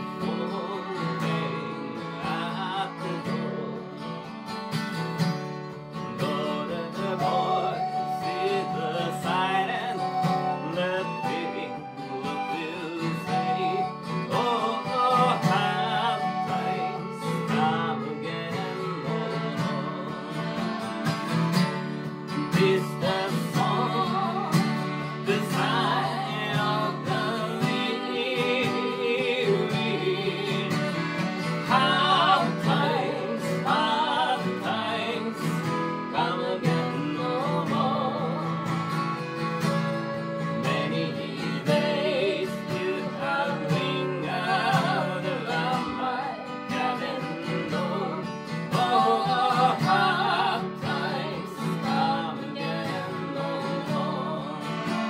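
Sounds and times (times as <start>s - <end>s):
accordion: 0.0s - 55.0s
acoustic guitar: 0.0s - 55.0s
woman singing folk song: 0.0s - 55.0s.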